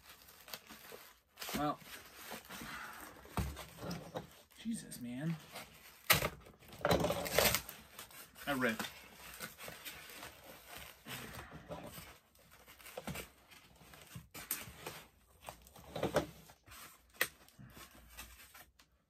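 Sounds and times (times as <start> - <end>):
packing tape ripping: 5.8 - 11.5.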